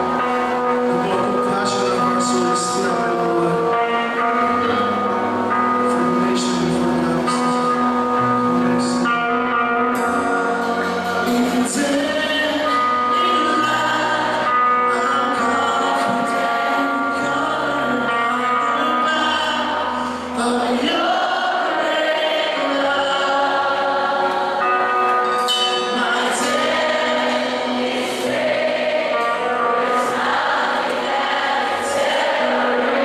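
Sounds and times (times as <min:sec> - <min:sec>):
band playing: 0:00.0 - 0:33.0
many voices singing together: 0:11.3 - 0:18.2, 0:19.1 - 0:33.0.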